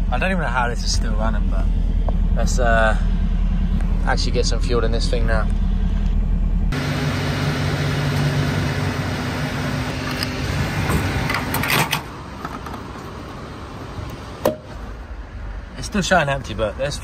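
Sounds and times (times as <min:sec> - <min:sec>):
fuel pump humming: 0:00.0 - 0:11.7.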